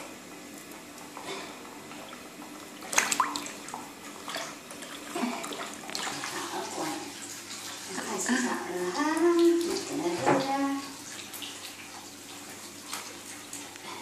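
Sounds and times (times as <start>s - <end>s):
water splashing in bathtub: 0.4s - 14.0s.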